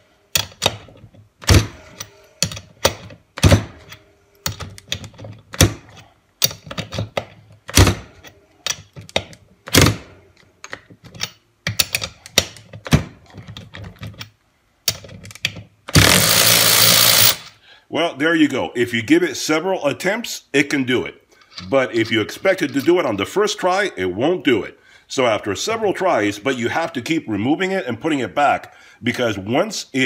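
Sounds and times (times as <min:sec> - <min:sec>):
ratchet motor running: 0:15.9 - 0:17.5.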